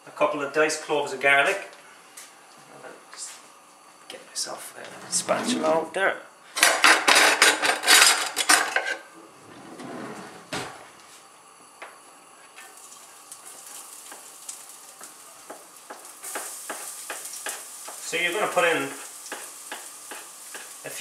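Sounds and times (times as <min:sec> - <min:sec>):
scraping off cutting board: 0:04.8 - 0:05.9, 0:09.4 - 0:10.8
faint sizzle in frying pan: 0:11.2 - 0:21.0.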